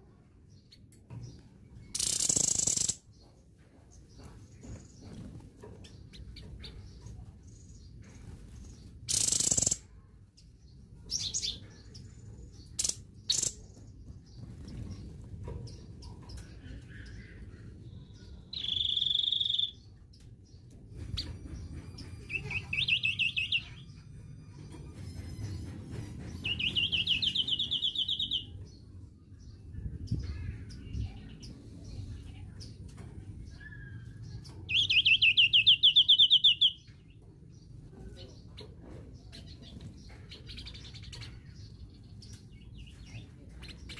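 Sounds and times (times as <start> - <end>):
songbird trilling: 1.9 - 3.0, 9.1 - 9.8, 18.5 - 19.8, 34.7 - 36.8.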